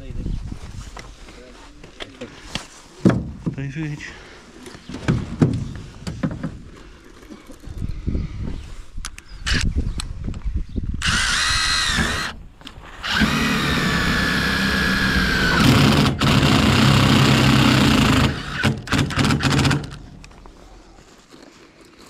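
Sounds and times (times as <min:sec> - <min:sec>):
cordless drill driving screw: 0:11.0 - 0:20.3.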